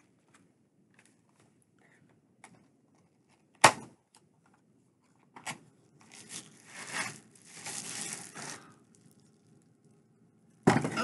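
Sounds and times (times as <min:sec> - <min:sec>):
packaging rustling and tearing: 0:06.0 - 0:09.7.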